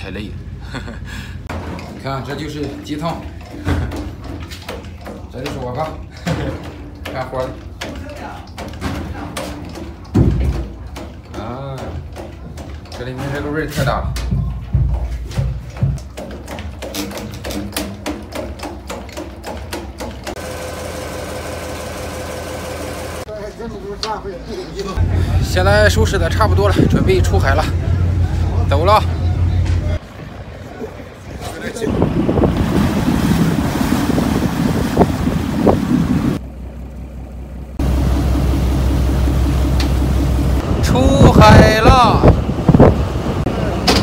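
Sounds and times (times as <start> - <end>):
engine noise with high whine: 20.4 - 23.3, 33.7 - 41.4
water churning along hull: 25.0 - 36.5, 37.6 - 44.0
wind on microphone: 31.2 - 36.4, 40.6 - 43.5
diesel engine knocking: 36.4 - 40.7.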